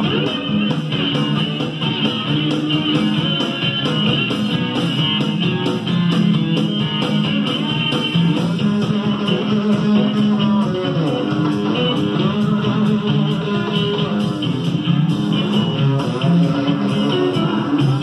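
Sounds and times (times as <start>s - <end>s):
guitar and bass music on speakers: 0.0s - 18.0s.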